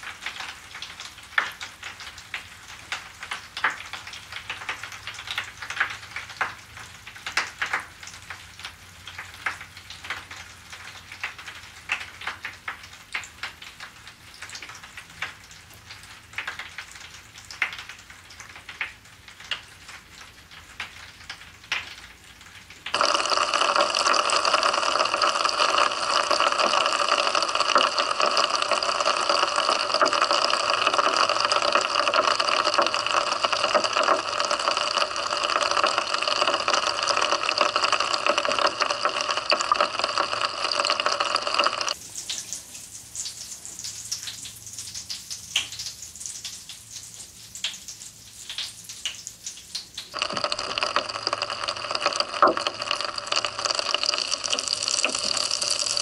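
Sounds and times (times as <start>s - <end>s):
bath crackles snapping in water: 20.8s - 46.8s, 47.6s - 56.0s.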